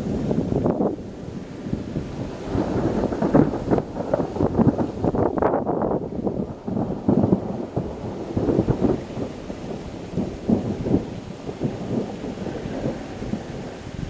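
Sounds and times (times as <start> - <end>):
thunder rumbling: 0.0 - 14.0.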